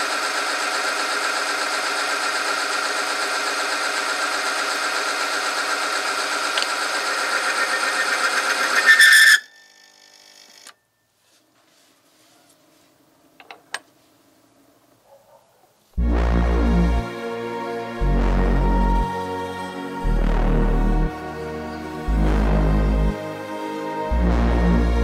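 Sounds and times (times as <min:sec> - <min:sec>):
high-pitched grinding whine: 0:00.0 - 0:10.8, 0:16.0 - 0:25.0
machine squealing: 0:06.9 - 0:10.2.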